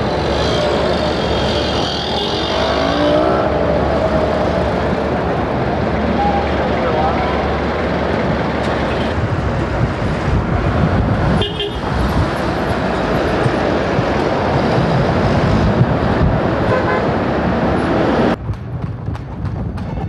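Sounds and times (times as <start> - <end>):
vehicle engines: 0.0 - 20.0
car horn toots: 11.4 - 11.8, 16.7 - 17.1.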